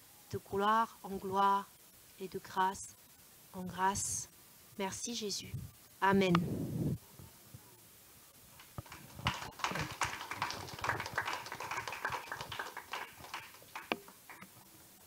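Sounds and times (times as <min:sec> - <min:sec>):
microphone handling noise: 0:06.3 - 0:07.3.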